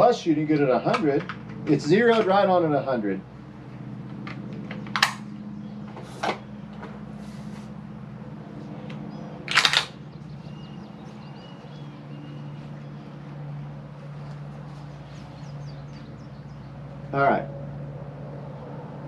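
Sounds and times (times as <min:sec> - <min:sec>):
steady low hum: 0:00.0 - 0:19.0
rifle bolt clicks and clacks: 0:04.1 - 0:05.3, 0:08.9 - 0:10.0.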